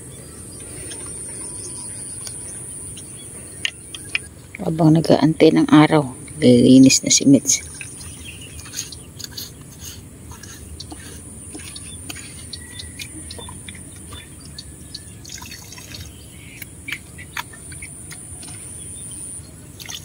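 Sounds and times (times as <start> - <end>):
water dripping and trickling: 7.5 - 20.0.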